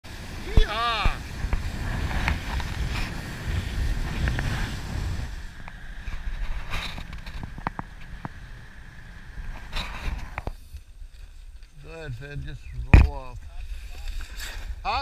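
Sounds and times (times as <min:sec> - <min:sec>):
wind buffeting microphone: 0:00.1 - 0:10.6.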